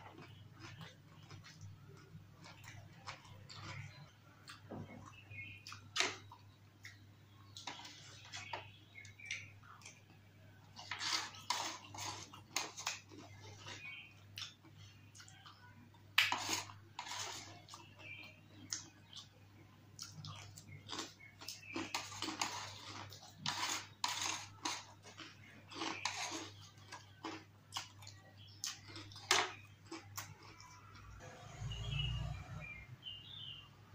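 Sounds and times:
plastic spoon clicking and scraping: 0:16.2 - 0:18.2, 0:21.6 - 0:27.0.

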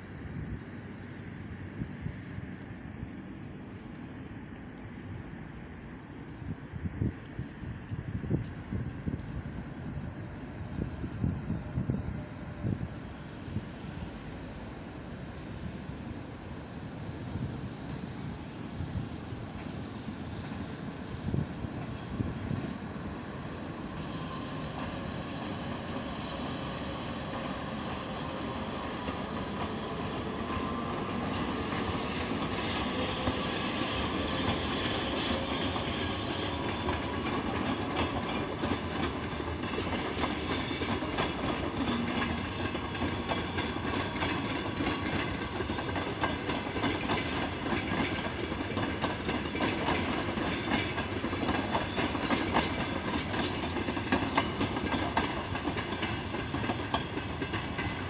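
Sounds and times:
electric locomotive passing: 0:00.0 - 0:58.0
wheels clicking over rail joints: 0:24.6 - 0:58.0.

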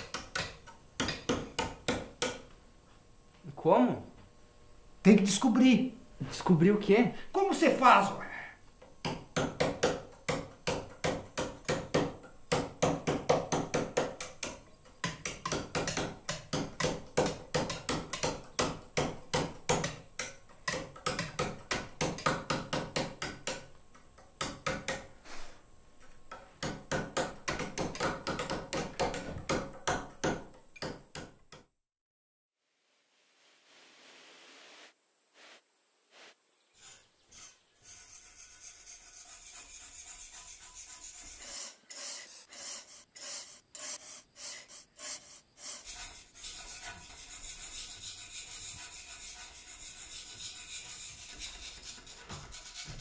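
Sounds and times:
hammers striking chisels on stone: 0:00.0 - 0:02.5, 0:08.9 - 0:25.1, 0:26.3 - 0:31.7.

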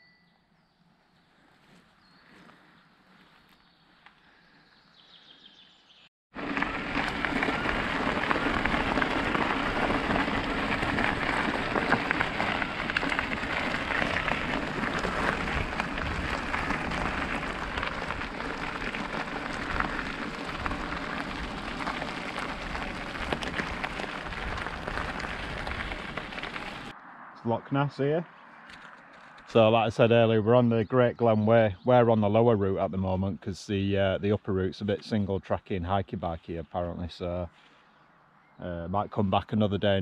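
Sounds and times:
bike tyres crunching on gravel: 0:01.2 - 0:04.3, 0:06.3 - 0:27.0
wind on microphone: 0:07.2 - 0:26.8.

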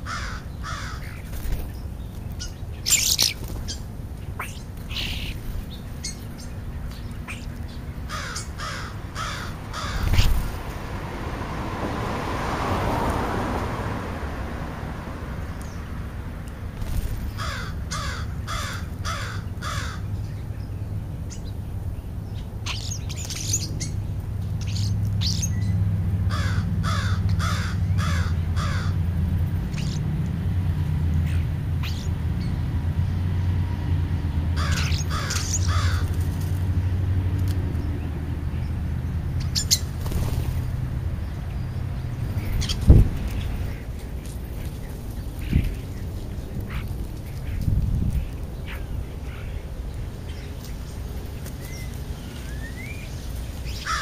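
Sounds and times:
crows cawing: 0:00.0 - 0:01.2, 0:08.1 - 0:10.3, 0:17.3 - 0:20.1, 0:26.3 - 0:29.0, 0:34.6 - 0:36.1, 0:53.8 - 0:54.0
steady low rumble: 0:13.9 - 0:52.4.

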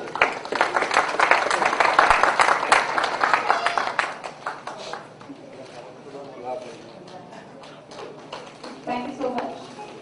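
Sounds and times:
audience applauding: 0:00.0 - 0:05.3.

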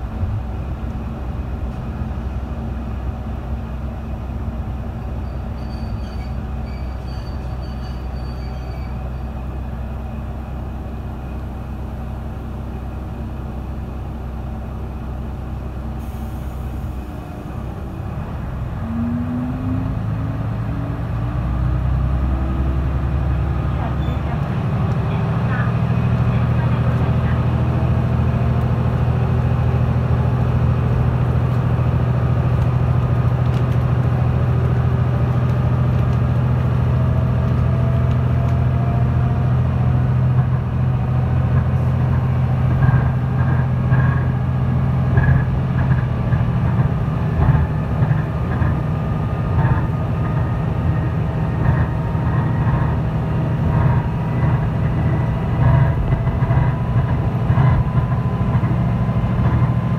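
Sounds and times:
diesel engine hum: 0:00.0 - 0:59.9
wheels on rails: 0:30.0 - 0:59.9.

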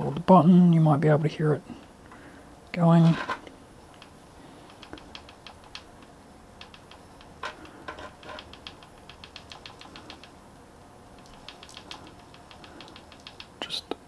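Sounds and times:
crackling ticks: 0:03.9 - 0:10.4, 0:11.2 - 0:14.0.

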